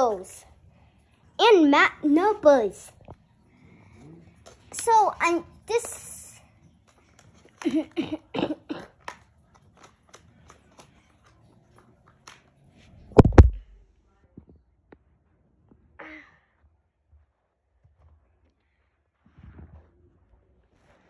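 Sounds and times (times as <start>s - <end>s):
child speaking: 0.0s - 0.4s, 1.4s - 3.0s, 4.7s - 6.4s.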